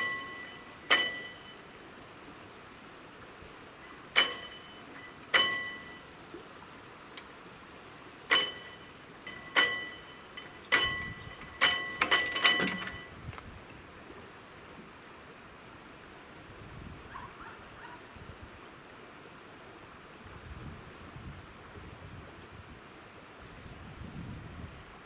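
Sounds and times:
level crossing warning bell: 0:00.0 - 0:01.8, 0:04.1 - 0:06.2, 0:08.3 - 0:13.2
barrier gear clatter: 0:09.3 - 0:13.1.

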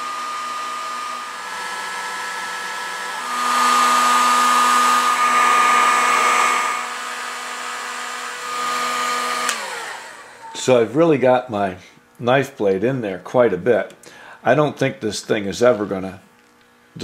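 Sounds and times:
heat gun blowing: 0:00.0 - 0:10.8.

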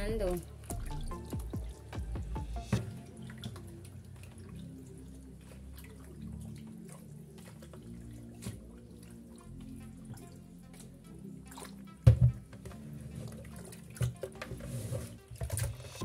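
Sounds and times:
water dripping in metal sink: 0:00.0 - 0:12.7
knock in sink: 0:12.0 - 0:12.4.

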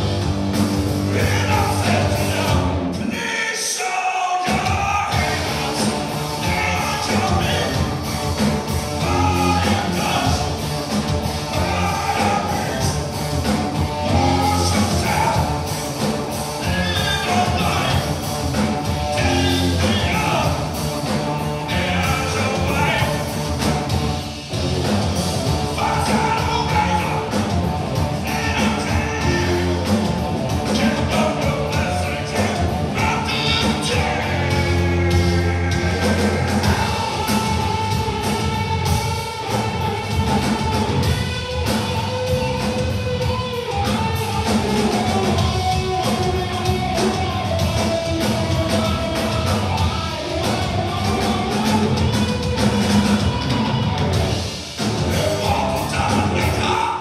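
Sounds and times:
drums hitting: 0:00.0 - 0:03.1, 0:04.4 - 0:56.9
hard rock band playing: 0:00.0 - 0:57.0
man singing lead vocal: 0:01.0 - 0:08.1, 0:09.0 - 0:10.7, 0:11.5 - 0:13.1, 0:14.0 - 0:15.8, 0:16.5 - 0:18.3, 0:19.0 - 0:20.8, 0:21.6 - 0:23.4, 0:25.6 - 0:39.0, 0:55.0 - 0:57.0.

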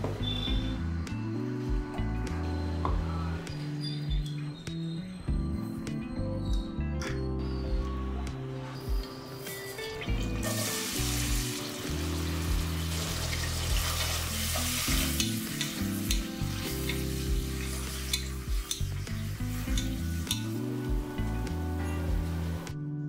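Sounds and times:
background music: 0:00.0 - 0:23.0
hot oil sizzling: 0:09.4 - 0:21.5
spatula clicking against pot: 0:15.2 - 0:17.0, 0:18.1 - 0:18.9, 0:19.7 - 0:20.5.

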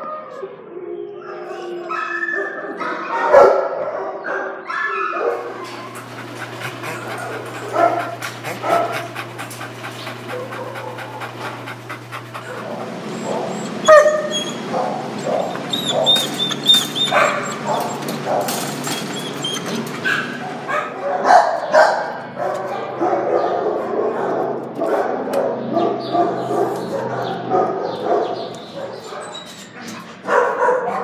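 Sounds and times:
dogs barking and whining: 0:00.0 - 0:31.0
steady low hum: 0:05.4 - 0:18.6.

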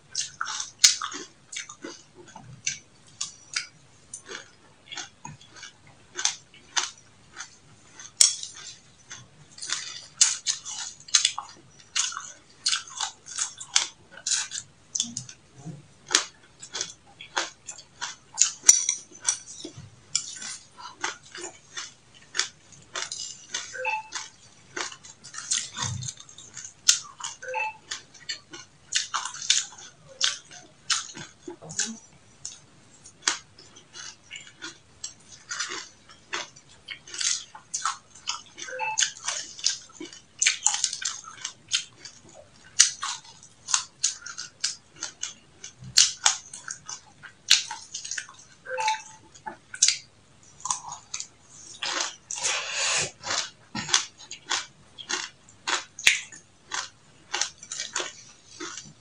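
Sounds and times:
crunching and chewing seeds: 0:00.0 - 0:59.0.

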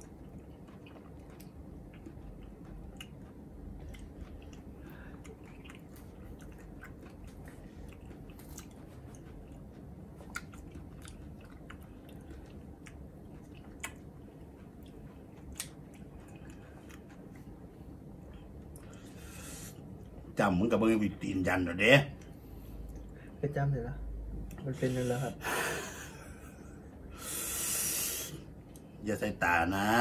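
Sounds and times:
person chewing: 0:00.0 - 0:20.3
low steady hum: 0:00.0 - 0:30.0.

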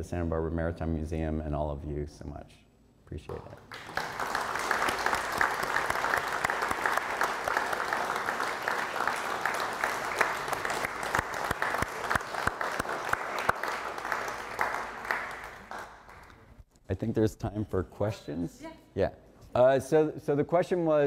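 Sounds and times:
audience applauding: 0:03.5 - 0:16.5.

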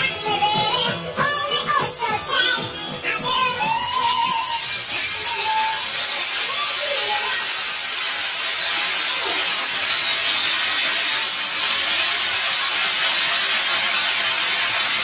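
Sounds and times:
high squealing cheers: 0:03.2 - 0:15.0
sped-up audience applause: 0:03.8 - 0:15.0.

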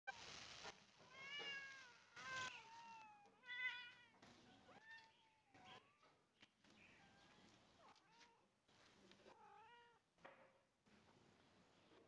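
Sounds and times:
cats meowing: 0:01.0 - 0:06.2.

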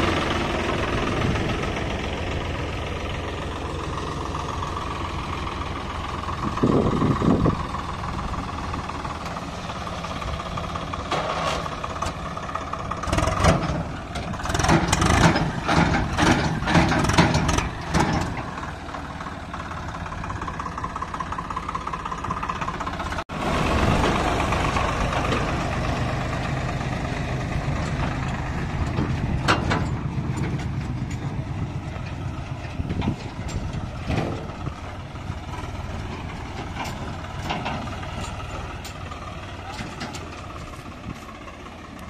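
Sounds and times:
tractor diesel engine running: 0:00.0 - 0:42.0.

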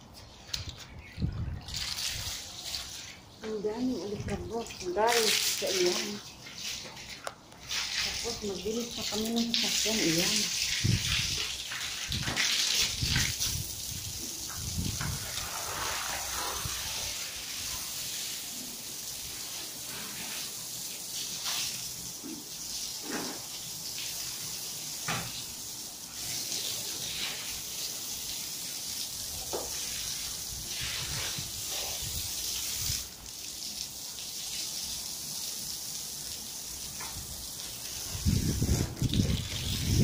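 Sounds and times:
water spraying hiss: 0:01.8 - 0:40.0
splashes and knocks: 0:10.7 - 0:13.6.

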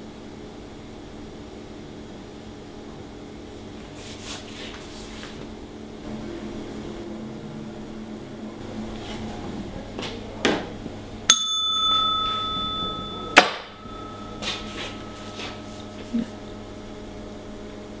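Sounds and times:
steady low hum: 0:00.0 - 0:18.0
service bell ringing: 0:11.3 - 0:17.3.

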